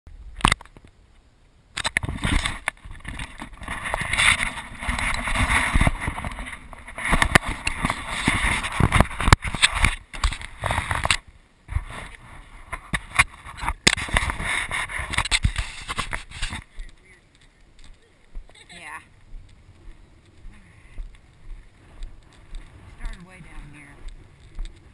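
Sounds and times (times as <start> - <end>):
camera handling rubbing and knocks: 1.8 - 16.7
wind buffeting microphone: 2.0 - 24.9.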